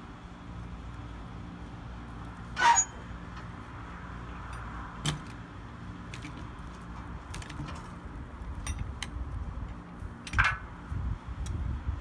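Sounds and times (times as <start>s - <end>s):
metal clinks and knocks: 8.5s - 9.1s.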